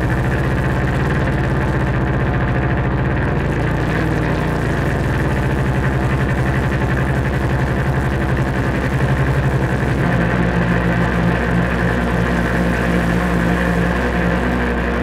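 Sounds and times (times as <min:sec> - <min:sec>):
dense electronic buzz: 0:00.0 - 0:15.0
fast-pulsing low electronic drone: 0:00.0 - 0:15.0.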